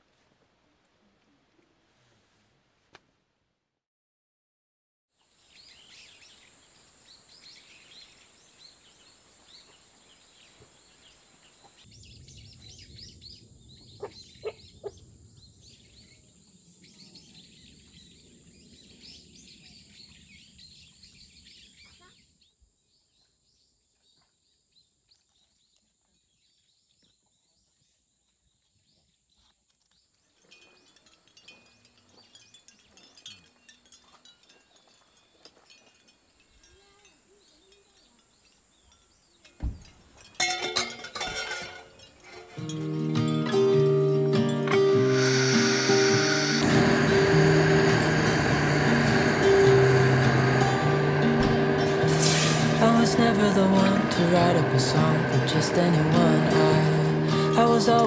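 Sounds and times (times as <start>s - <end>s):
birds chirping: 5.4s - 22.5s, 42.0s - 58.0s
shell wind chime clinking: 30.4s - 43.4s
high thin tone: 44.4s - 58.0s.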